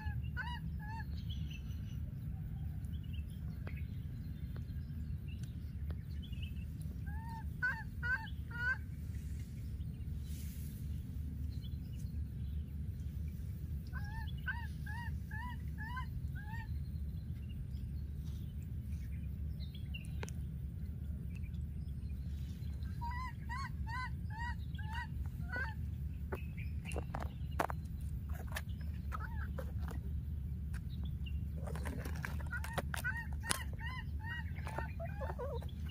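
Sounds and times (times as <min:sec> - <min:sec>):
baby monkey high calls: 0:23.0 - 0:25.8, 0:29.1 - 0:30.0, 0:32.5 - 0:35.9.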